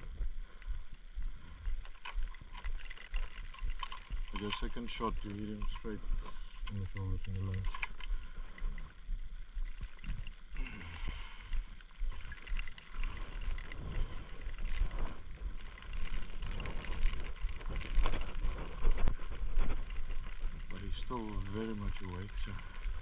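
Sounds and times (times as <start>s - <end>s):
rustles and clicks: 0.0s - 23.0s
wind buffeting microphone: 12.0s - 23.0s.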